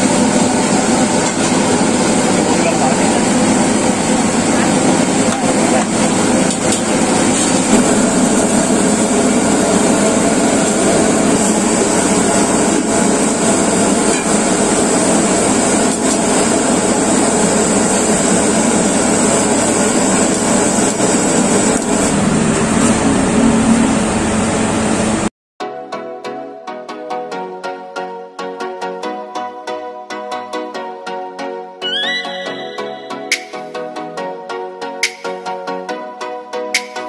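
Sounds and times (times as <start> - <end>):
pressure cooker rushing noise: 0.0 - 25.3.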